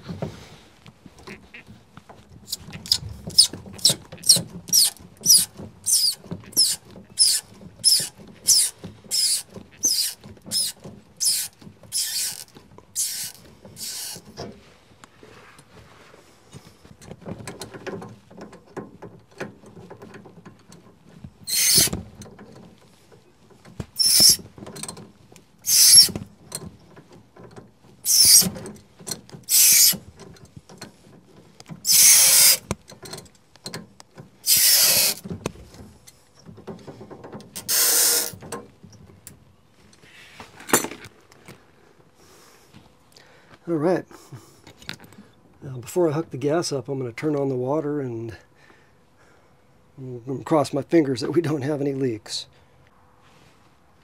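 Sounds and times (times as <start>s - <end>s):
tool handling clatter: 0.0s - 41.6s
hissy mechanical bursts: 2.9s - 14.2s, 21.4s - 22.0s, 24.0s - 24.4s, 25.6s - 26.2s, 28.0s - 28.6s, 29.5s - 30.0s, 31.8s - 32.7s, 34.4s - 35.3s, 37.6s - 38.4s.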